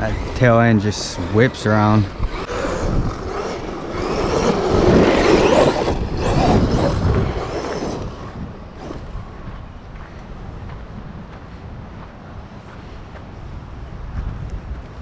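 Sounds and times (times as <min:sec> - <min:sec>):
tyres churning loose ground: 0:00.0 - 0:09.5
electric rc truck driving: 0:00.0 - 0:10.7.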